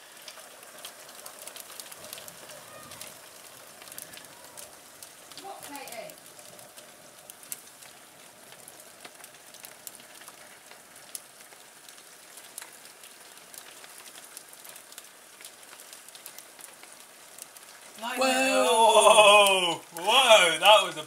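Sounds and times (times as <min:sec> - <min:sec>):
hailstones ticking on window: 0:00.0 - 0:18.1, 0:18.7 - 0:21.0
rain and hail patter: 0:00.0 - 0:21.0
person's voice: 0:18.0 - 0:21.0.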